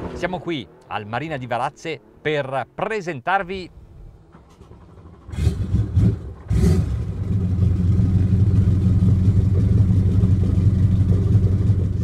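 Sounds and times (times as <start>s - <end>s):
boat engines starting and idling: 3.7s - 12.0s.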